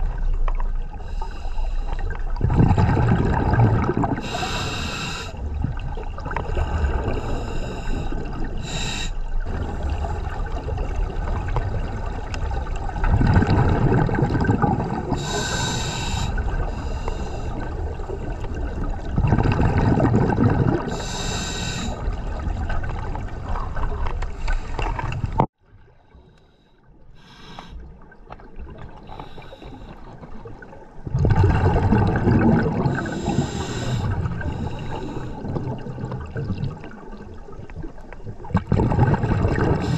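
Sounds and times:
diver breathing through regulator: 1.0s - 2.2s, 4.2s - 5.4s, 6.4s - 10.1s, 15.0s - 17.9s, 20.7s - 22.2s, 26.2s - 27.8s, 29.0s - 30.2s, 32.7s - 35.6s
gurgling exhaled bubbles: 2.0s - 25.5s, 27.8s - 39.9s.

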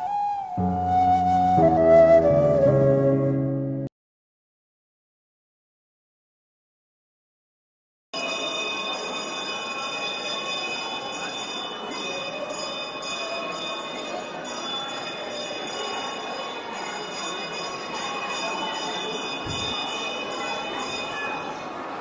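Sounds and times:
bells ringing: 8.2s - 21.8s
general hubbub: 8.2s - 22.0s.

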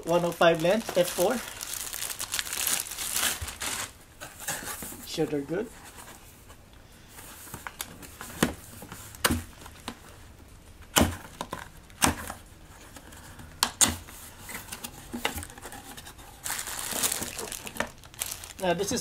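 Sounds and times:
plastic wrapping crinkling: 0.0s - 4.9s, 14.0s - 19.0s.

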